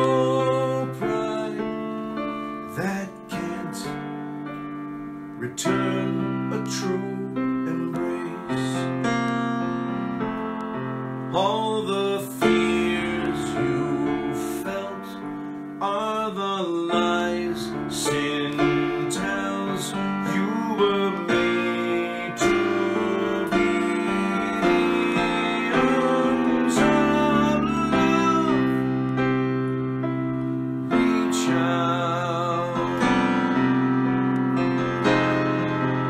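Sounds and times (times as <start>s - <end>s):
man singing: 0.0s - 4.4s, 5.3s - 9.4s, 11.2s - 29.5s, 30.7s - 34.1s
electronic keyboard chords: 0.0s - 36.0s.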